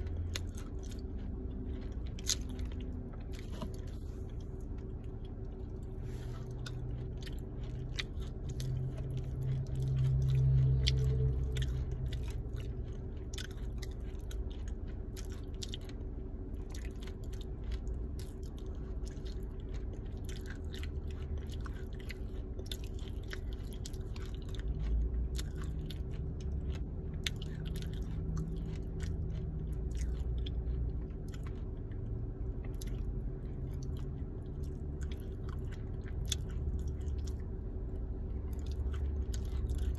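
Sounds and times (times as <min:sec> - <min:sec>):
clay being chewed crunching: 0:00.0 - 0:39.9
faint steady hum: 0:00.0 - 0:39.9.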